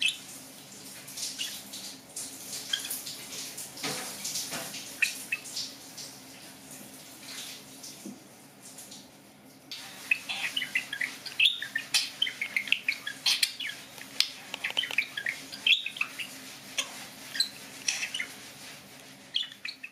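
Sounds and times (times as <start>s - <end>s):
budgerigar chattering and chirping: 9.8s - 18.4s.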